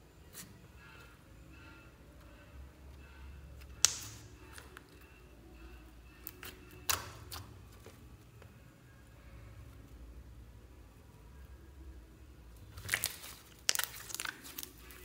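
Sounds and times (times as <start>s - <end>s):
slime popping and crackling: 3.8s - 4.8s, 6.2s - 7.5s, 12.7s - 15.0s.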